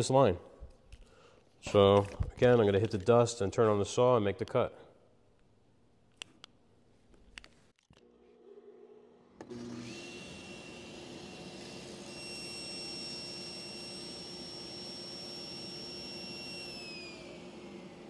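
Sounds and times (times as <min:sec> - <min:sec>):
table saw motor whining: 0:09.1 - 0:18.0
dust collector running: 0:09.4 - 0:18.0.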